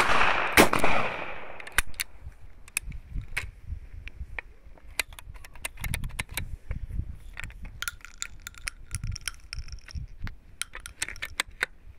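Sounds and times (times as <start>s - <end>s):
revolver cylinder metallic clicks: 1.5s - 3.5s, 7.4s - 11.8s
short ringing clinks: 7.8s - 11.4s.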